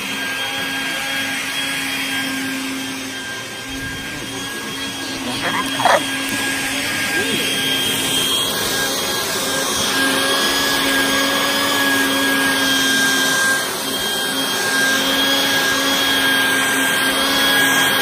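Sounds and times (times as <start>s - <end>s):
vacuum cleaner motor whining: 0.0s - 18.0s
brush nozzle rubbing through fleece: 5.4s - 6.0s.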